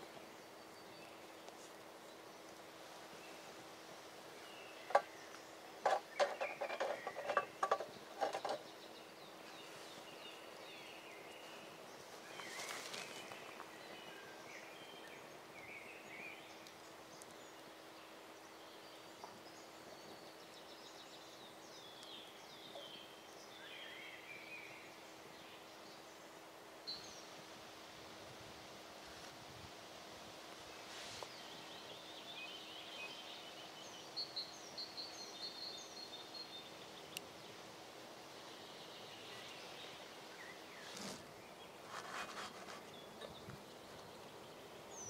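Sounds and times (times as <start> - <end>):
birds chirping: 0.0 - 27.4, 30.7 - 45.0
brief rustle: 12.2 - 13.7, 40.7 - 43.3.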